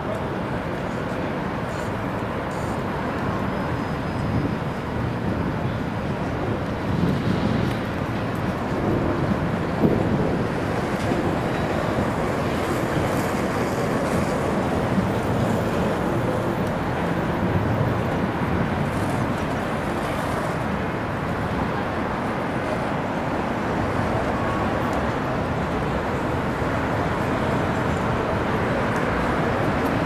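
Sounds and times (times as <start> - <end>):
city traffic hum: 0.0 - 30.0.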